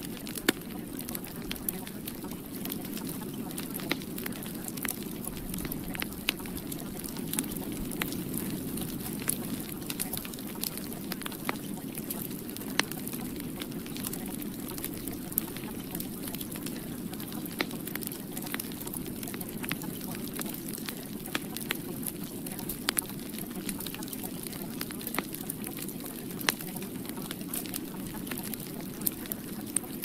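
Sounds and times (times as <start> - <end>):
sharp crackles and clicks: 0.0 - 30.0.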